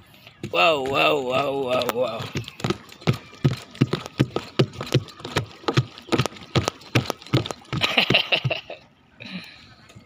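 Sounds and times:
footsteps on plastic pontoon: 0.0 - 8.8.

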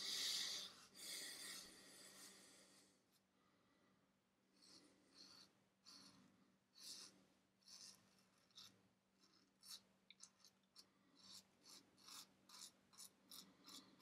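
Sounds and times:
razor scraping stubble: 6.8 - 14.0.

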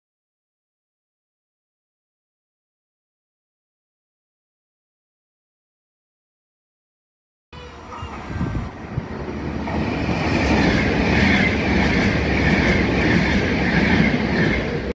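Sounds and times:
electric train passing: 7.6 - 14.9.

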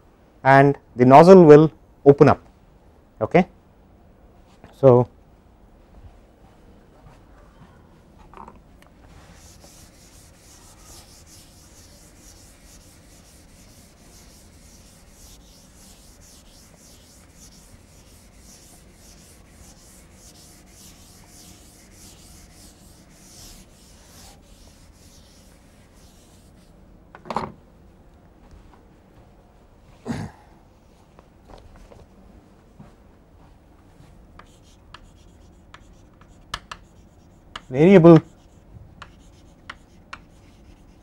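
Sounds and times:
chalk scratching on blackboard: 9.1 - 26.7, 34.4 - 41.0.

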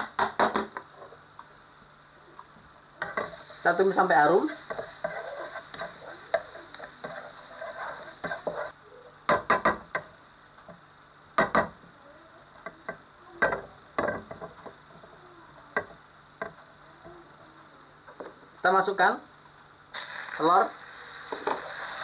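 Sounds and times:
garlic sizzling in oil: 1.2 - 8.8, 19.7 - 22.0
spatula scraping and tapping a wok: 3.0 - 3.7, 4.4 - 10.8, 11.4 - 11.8.

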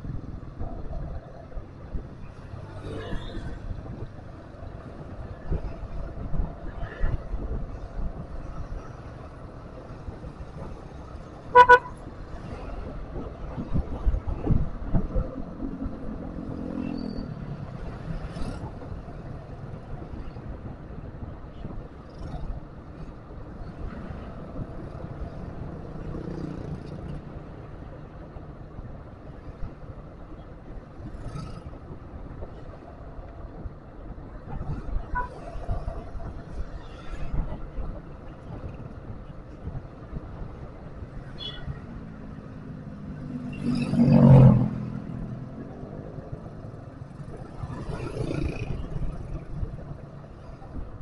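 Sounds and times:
motorbikes and cars passing: 0.0 - 51.0
vehicle engine and tyre noise: 0.0 - 51.0
vehicle horn toot: 11.6 - 11.9.

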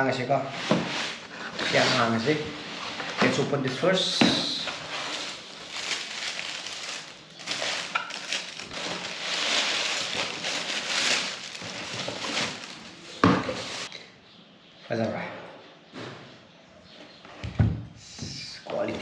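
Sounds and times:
tissue paper rustling: 4.5 - 13.9.

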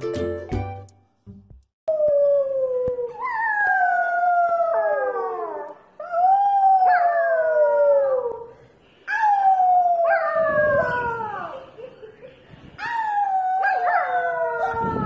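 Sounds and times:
dog howling: 12.8 - 15.0.

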